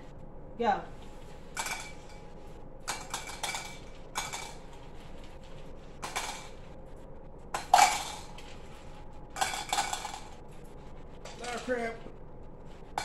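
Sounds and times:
pieces clinking into glasses: 1.6 - 2.2, 2.9 - 4.7, 7.6 - 8.4, 9.4 - 10.4.

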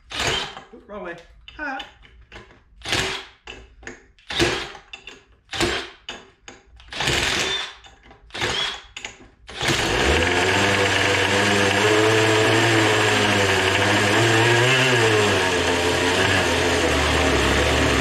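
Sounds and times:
cordless drill cranking engine: 0.1 - 0.7, 4.2 - 4.8, 6.8 - 18.0
small two-stroke engine running: 9.6 - 18.0.

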